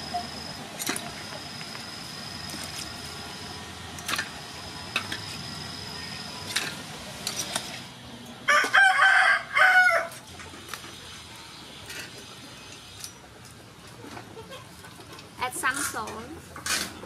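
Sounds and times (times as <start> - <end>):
rooster crowing: 8.5 - 10.2.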